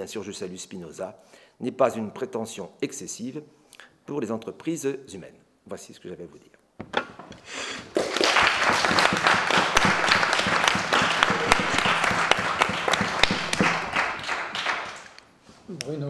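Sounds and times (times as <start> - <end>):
audience clapping: 7.7 - 15.3.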